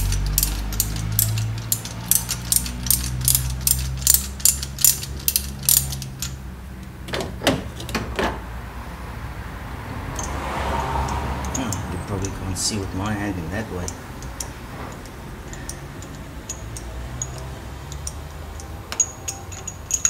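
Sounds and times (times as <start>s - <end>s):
ratchet wrench clicking: 0.0s - 6.4s, 10.2s - 12.4s, 13.8s - 20.0s.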